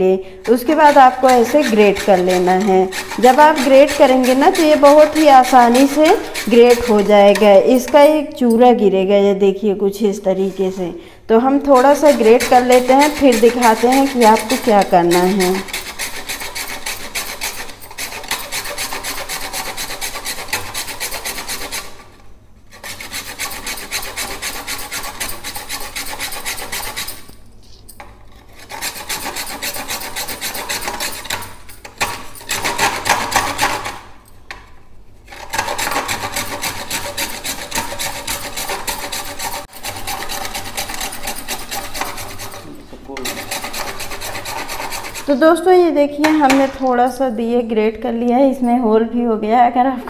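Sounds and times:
clay grating on metal grater: 0:00.4 - 0:08.2, 0:11.5 - 0:27.4, 0:28.2 - 0:34.1, 0:35.3 - 0:45.6.

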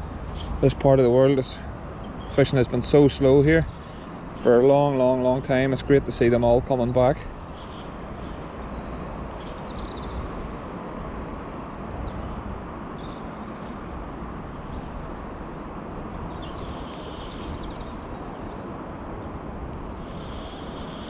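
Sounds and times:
faint bird chirps: 0:19.9 - 0:21.0.

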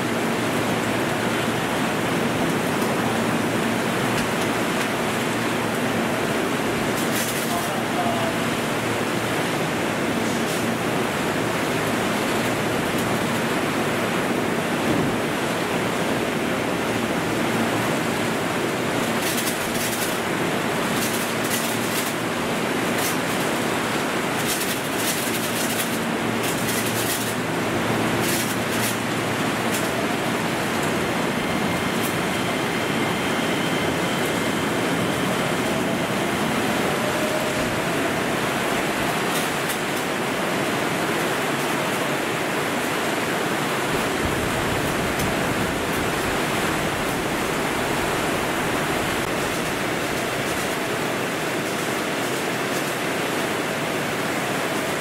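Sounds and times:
heavy rain hissing: 0:00.0 - 0:55.0
electric train motor whine: 0:25.8 - 0:40.9, 0:42.4 - 0:52.2.

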